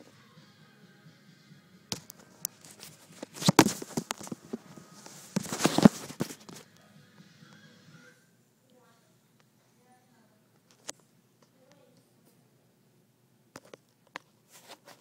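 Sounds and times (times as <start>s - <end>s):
cat scratching against a phone: 2.2s - 6.6s.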